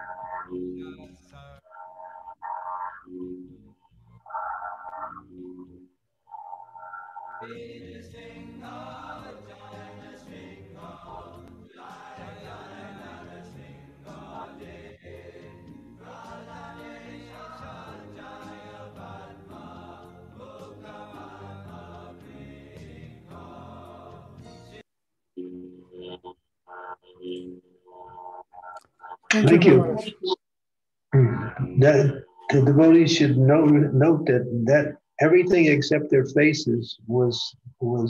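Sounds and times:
group of voices chanting: 7.4 - 24.4.

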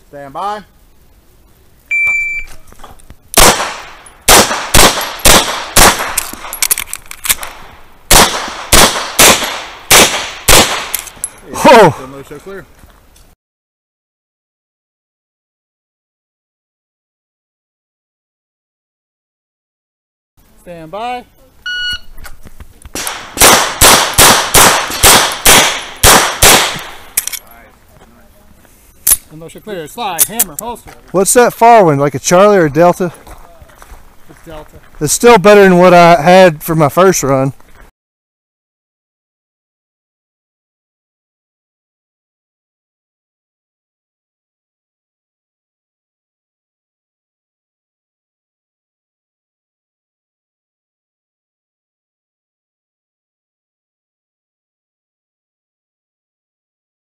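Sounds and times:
shot timer beep: 1.9 - 2.5, 21.7 - 22.1
rapid pistol fire: 3.4 - 6.6, 7.4 - 11.0, 23.0 - 27.2.

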